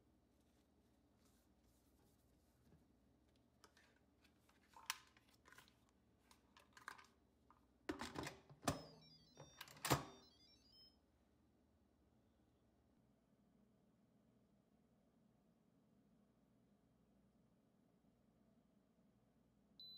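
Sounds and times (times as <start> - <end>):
electronic beep tune: 8.7 - 11.0.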